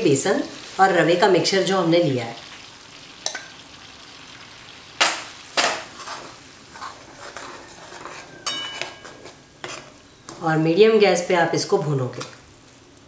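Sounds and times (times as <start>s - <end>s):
spoon scraping metal pan: 5.7s - 10.0s
metallic ring: 8.3s - 9.2s.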